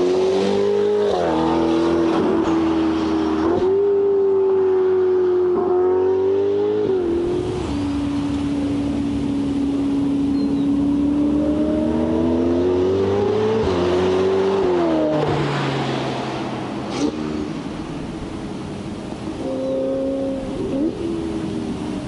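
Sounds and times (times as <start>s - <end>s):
sports car accelerating hard: 0.0s - 18.1s
car passing by: 11.3s - 17.7s.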